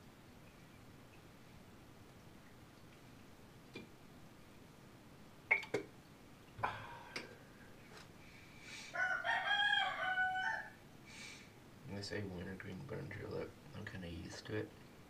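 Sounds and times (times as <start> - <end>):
rooster crowing: 8.9 - 10.8.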